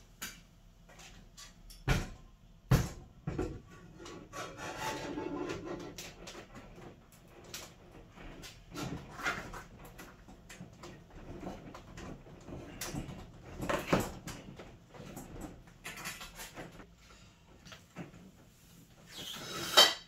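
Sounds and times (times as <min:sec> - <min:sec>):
fridge knocking and scraping: 0:01.9 - 0:07.0.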